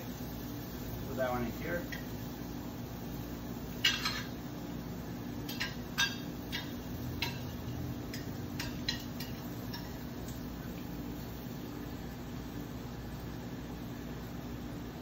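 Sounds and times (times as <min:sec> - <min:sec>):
low kitchen hum: 0:00.0 - 0:15.0
metal utensil clicking on griddle: 0:05.5 - 0:10.4.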